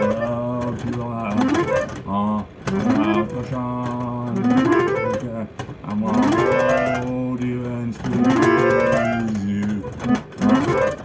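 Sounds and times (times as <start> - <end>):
backing music with guitar: 0.0 - 5.5
man singing wordless notes: 0.0 - 10.0.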